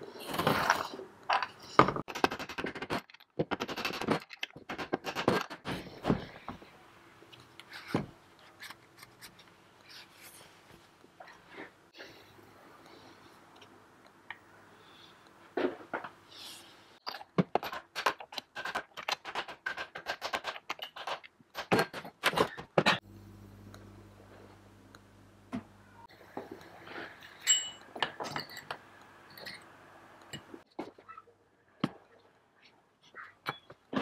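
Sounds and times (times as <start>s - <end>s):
low steady hum: 23.0s - 30.6s
metal tools clinking on workbench: 27.2s - 29.6s.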